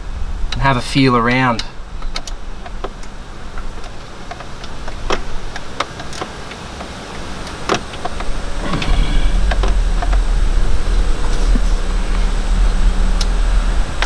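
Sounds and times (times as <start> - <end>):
hand clicking among engine parts: 1.6 - 10.2
low rumble: 8.1 - 14.0.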